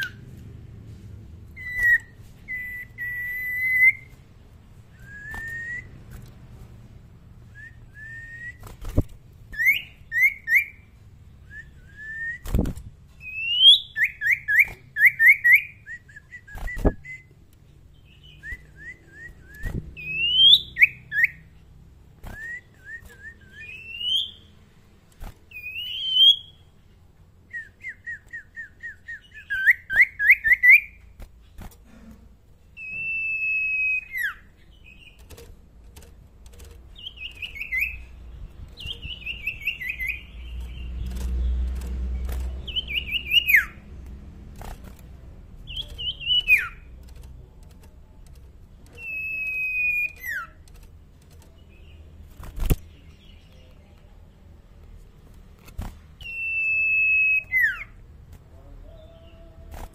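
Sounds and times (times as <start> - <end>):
bird chirping and whistling: 1.5 - 4.2, 4.9 - 6.1, 7.5 - 17.3, 18.0 - 21.5, 22.2 - 24.5, 25.5 - 26.6, 27.5 - 31.0, 32.8 - 35.2, 37.0 - 43.9, 45.7 - 46.9, 49.0 - 50.6, 56.2 - 58.0.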